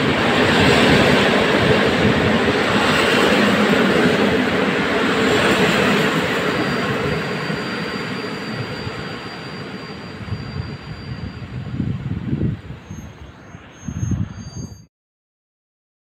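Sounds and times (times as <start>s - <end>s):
train carriages rumbling on rails: 0.0s - 12.6s
faint high whine: 0.0s - 14.9s.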